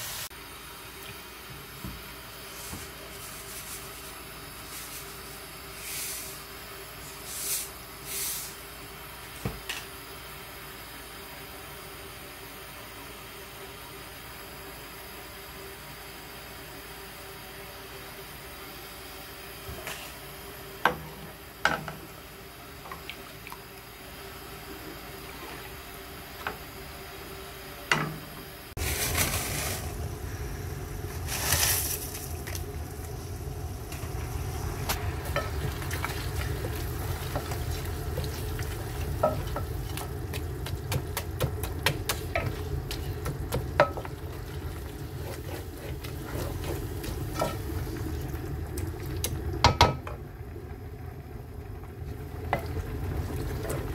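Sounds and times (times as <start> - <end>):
food sizzling in a pot: 0.0 - 0.6, 28.8 - 50.2
wooden spoon scraping a pot: 45.0 - 47.7.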